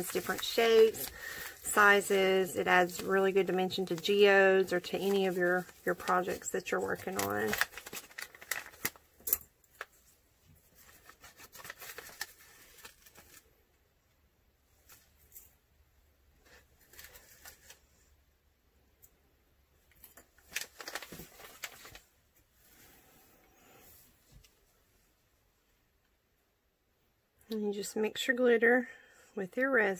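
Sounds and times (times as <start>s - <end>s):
plastic bag crinkling: 0.0s - 10.0s, 10.8s - 13.5s, 20.2s - 22.1s.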